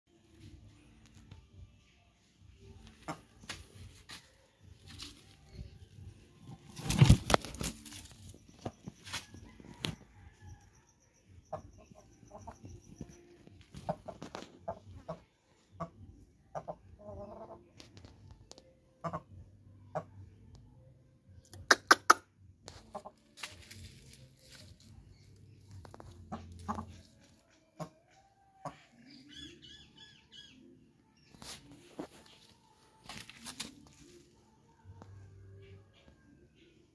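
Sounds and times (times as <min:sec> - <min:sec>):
hen clucking: 0:02.8 - 0:03.5, 0:11.4 - 0:17.8, 0:19.0 - 0:19.3, 0:22.8 - 0:23.2, 0:25.9 - 0:29.8
hen wings flapping: 0:06.6 - 0:08.2.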